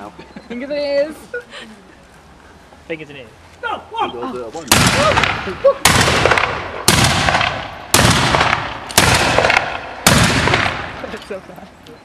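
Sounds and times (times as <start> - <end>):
musket shots echoing: 4.7 - 11.2.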